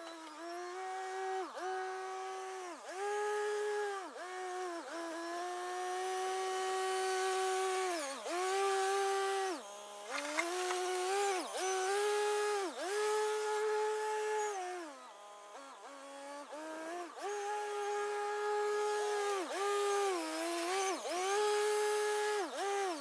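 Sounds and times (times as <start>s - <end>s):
box blade scraping gravel: 10.0s - 11.4s.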